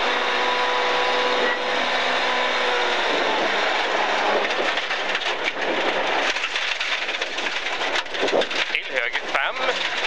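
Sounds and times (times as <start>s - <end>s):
gravel and tyre noise: 0.0s - 10.0s
stones hitting the car: 3.9s - 10.0s.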